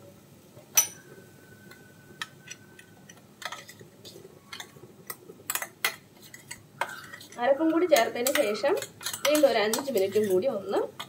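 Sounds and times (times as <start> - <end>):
spoon clinking against bowl: 0.8 - 1.1, 7.9 - 10.4.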